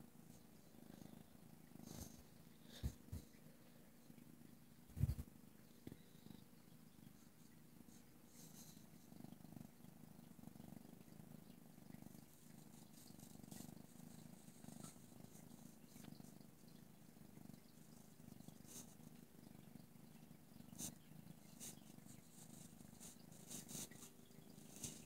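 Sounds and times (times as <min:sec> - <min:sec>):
cat purring: 0:00.0 - 0:25.0
faint scratchy clicks: 0:11.0 - 0:25.0.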